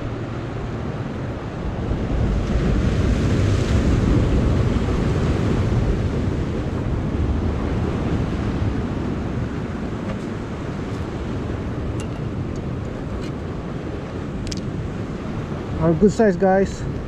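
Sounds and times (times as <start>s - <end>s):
surf washing against rocks: 0.0s - 17.0s
wind buffeting microphone: 0.0s - 17.0s.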